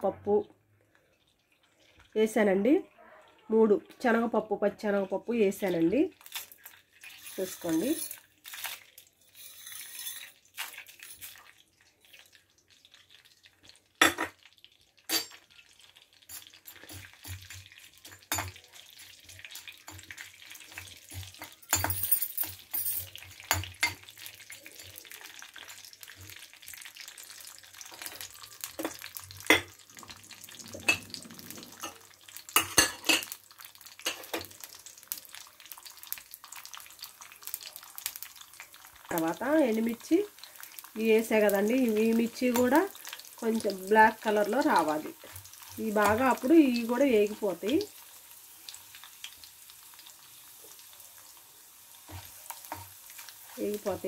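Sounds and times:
soft sizzle of frying: 0.0 - 54.0
metal spoon scraping a metal pan: 7.0 - 11.4, 15.1 - 15.4, 16.2 - 24.0.

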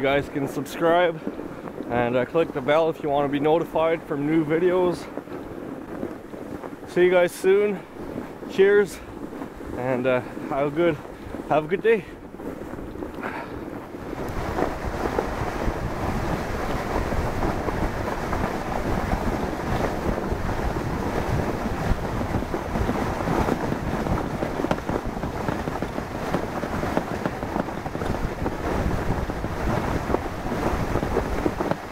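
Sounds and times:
sled sliding over snow: 0.0 - 31.9
wind buffeting microphone: 0.0 - 31.9.

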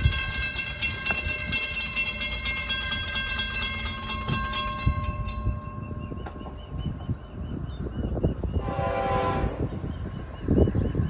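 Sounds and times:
crossing warning bell ringing: 0.0 - 7.4
low train rumble: 0.0 - 11.0
train horn held notes: 8.6 - 9.8.

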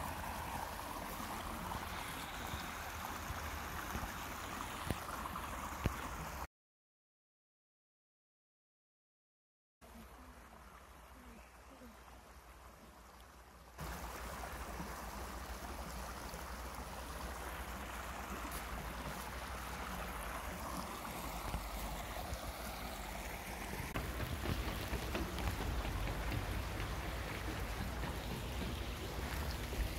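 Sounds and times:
stream water rushing over stones: 0.0 - 6.5, 9.8 - 29.9
low water rumble: 9.8 - 29.9.

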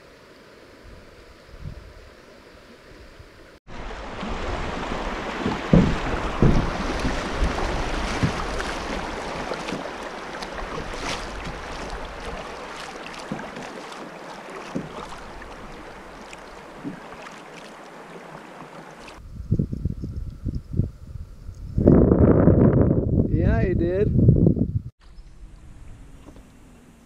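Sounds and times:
river water rushing: 3.7 - 19.2.

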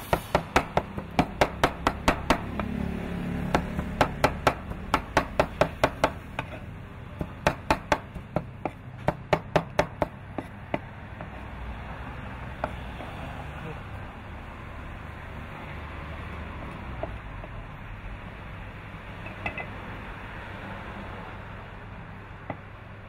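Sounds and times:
cleaver chopping meat on wooden board: 0.3 - 2.8, 3.4 - 11.5.

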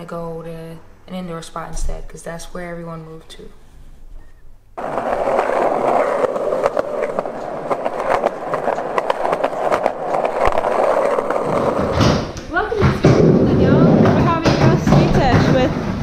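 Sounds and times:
skateboard rolling over pavement: 4.8 - 16.0
skateboard wheels clicking over cracks: 4.8 - 16.0.

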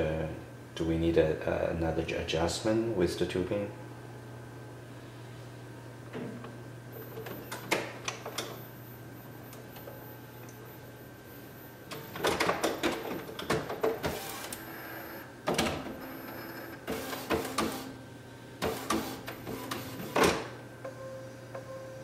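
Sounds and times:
printer whirring and clicking: 11.8 - 18.0, 18.6 - 21.7
printer sharp clack: 16.8 - 17.9, 18.6 - 20.5.

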